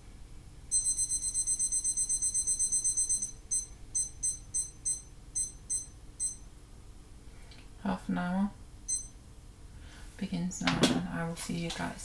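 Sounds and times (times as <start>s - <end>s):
kitchen timer beeping: 0.7s - 6.5s, 8.9s - 9.2s.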